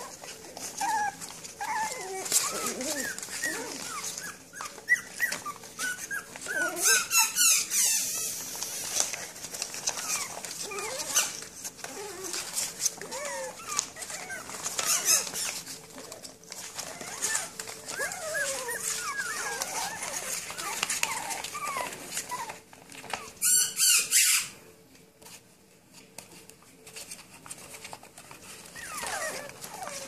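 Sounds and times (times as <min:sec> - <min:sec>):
puppies whimpering and squeaking: 0:00.0 - 0:24.7, 0:26.8 - 0:30.0
paws scratching on paper: 0:00.0 - 0:30.0.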